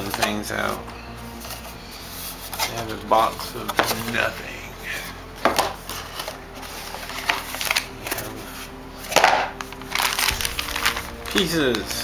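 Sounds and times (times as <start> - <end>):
cardboard box and plastic bag rustling: 5.4 - 12.0.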